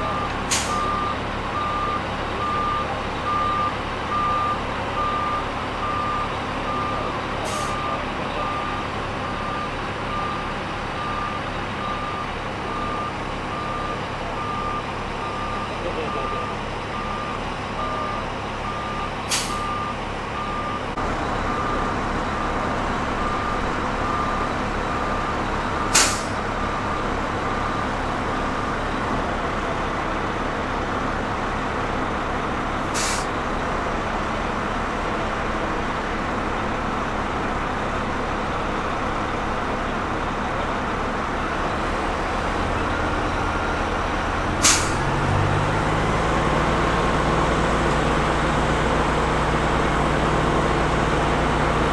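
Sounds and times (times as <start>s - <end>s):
reversing beep: 0.0s - 22.6s, 23.2s - 28.9s
diesel engine running: 0.0s - 51.9s
short sharp hisses: 26.0s - 26.4s, 32.9s - 33.3s, 44.6s - 45.0s.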